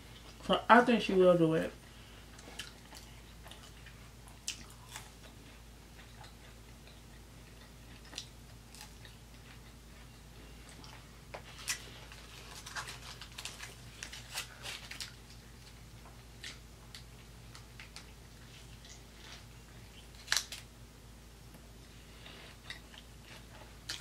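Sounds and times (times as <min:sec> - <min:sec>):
person chewing: 0:02.2 - 0:20.6, 0:21.8 - 0:24.0
foil crackling: 0:11.5 - 0:15.3.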